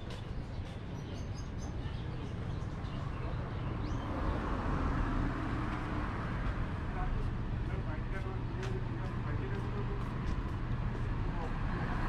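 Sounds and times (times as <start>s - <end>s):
road traffic rumble: 0.0s - 12.0s
vehicle passing: 3.2s - 12.0s.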